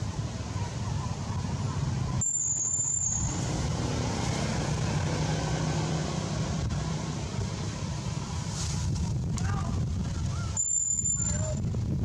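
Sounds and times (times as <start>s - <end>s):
vehicle engine rumble: 0.0s - 12.0s
high squeal: 2.2s - 3.4s, 10.4s - 11.6s.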